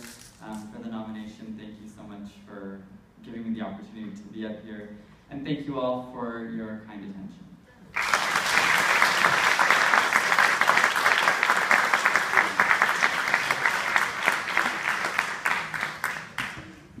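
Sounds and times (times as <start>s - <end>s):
audience applauding: 8.0s - 16.9s.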